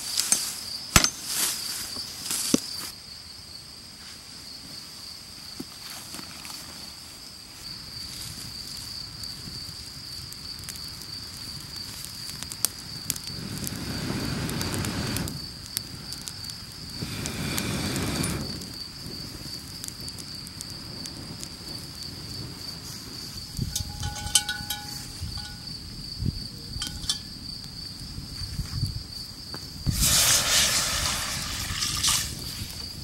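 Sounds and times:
insect trill: 0.0s - 33.0s
fire crackling: 7.5s - 33.0s
breath blown onto fire: 13.3s - 18.7s, 29.8s - 32.8s
water pouring into pot: 30.0s - 32.3s.

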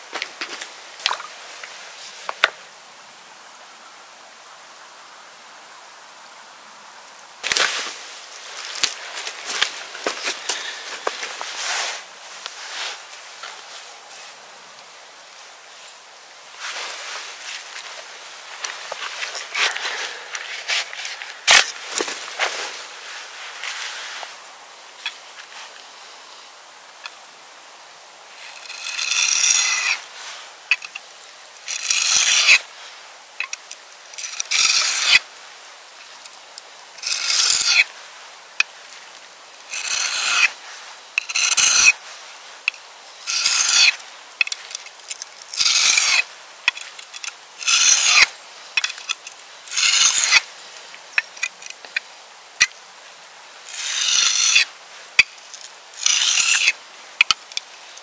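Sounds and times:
rasping strokes: 28.4s - 30.1s, 30.7s - 32.6s, 33.4s - 35.2s, 37.0s - 37.9s, 39.7s - 40.6s, 41.2s - 42.0s, 42.7s - 50.5s, 53.7s - 54.7s, 56.0s - 57.4s.

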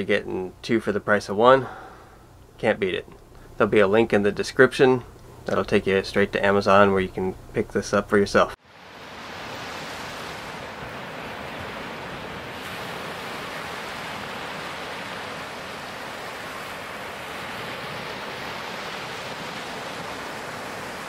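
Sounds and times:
waves breaking on beach: 8.6s - 21.0s.

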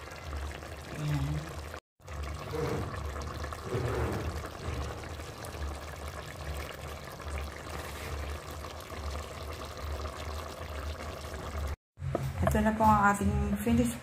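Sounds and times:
curry bubbling in metal pot: 0.0s - 11.8s.

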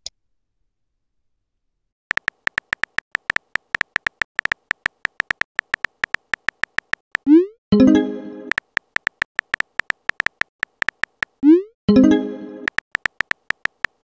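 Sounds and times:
phone keyboard typing clicks: 2.1s - 7.4s, 8.5s - 11.4s, 12.7s - 14.0s.

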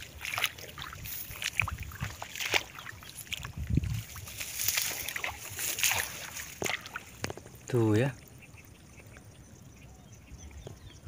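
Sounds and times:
rice plants rustling: 0.0s - 7.9s
footsteps sloshing in water and mud: 0.0s - 8.1s.

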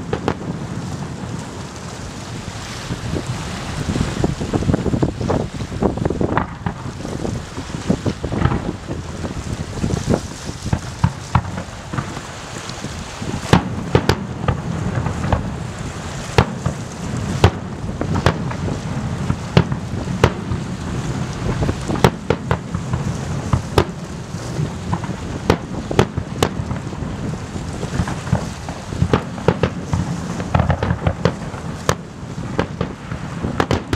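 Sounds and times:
steady low rumble: 0.0s - 12.3s
fireworks bangs: 0.0s - 33.9s.

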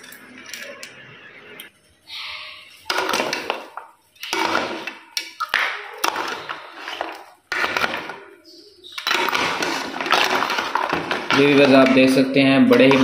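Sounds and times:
liquid sloshing in a pot: 2.7s - 12.1s.

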